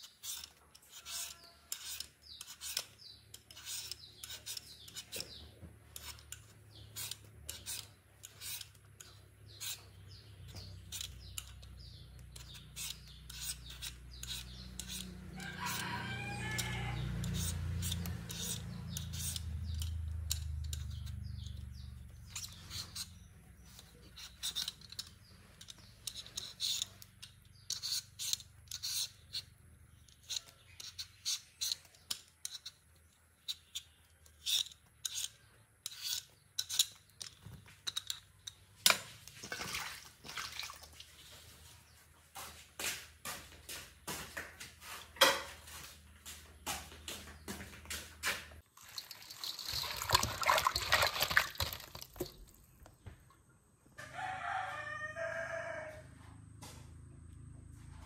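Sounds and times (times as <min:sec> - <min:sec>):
sharp scraping strokes: 0:00.0 - 0:20.0, 0:20.7 - 0:32.8, 0:33.4 - 0:37.3.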